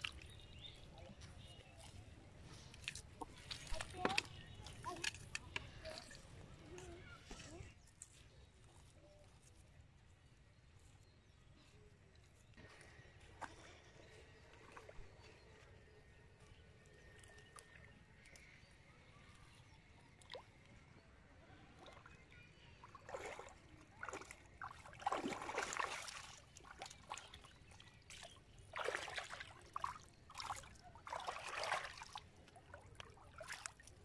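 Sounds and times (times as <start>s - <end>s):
fish thrashing and splashing in water: 23.0s - 34.0s.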